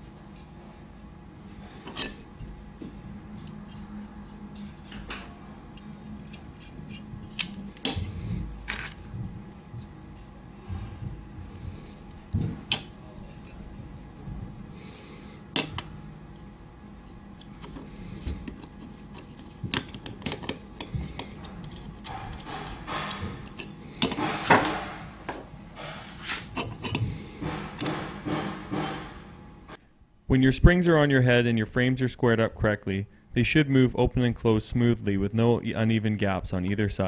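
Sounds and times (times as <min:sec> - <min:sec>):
small metal clicks and scrapes: 0:05.8 - 0:07.6.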